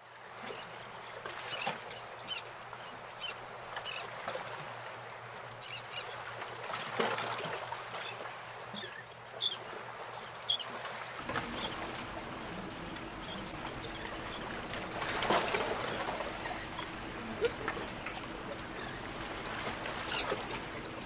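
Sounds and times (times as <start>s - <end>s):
fish splashing and gulping: 10.8s - 21.0s.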